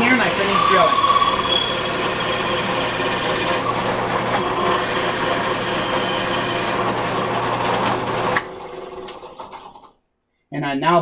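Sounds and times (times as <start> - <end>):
drill bit cutting wood: 0.0 - 9.6
drill press motor hum: 0.0 - 9.9.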